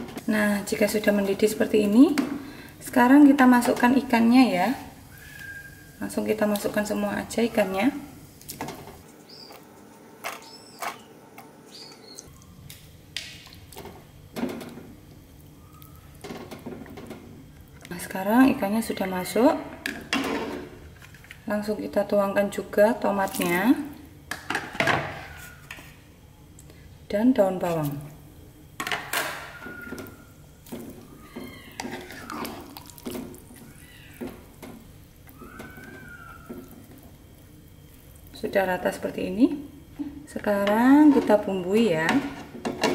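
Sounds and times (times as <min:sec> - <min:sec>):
spatula scraping a wok: 0:31.7 - 0:32.7.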